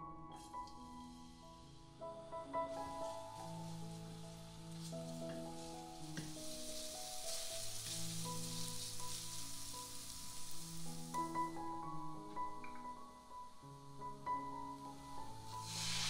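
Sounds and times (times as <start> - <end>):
soft background music: 0.0 - 16.0
garlic sizzling in oil: 2.7 - 12.0, 13.8 - 16.0.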